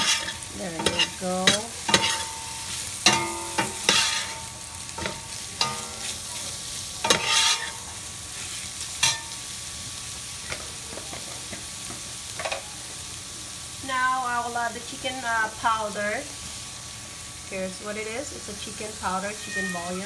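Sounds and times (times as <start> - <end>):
frying sizzle: 0.0 - 20.0
metal spoon scraping pot: 7.1 - 7.7.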